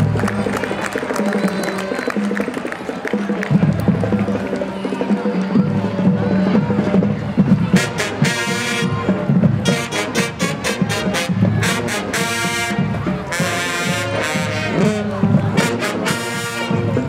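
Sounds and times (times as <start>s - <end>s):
brass chords: 6.0s - 17.0s.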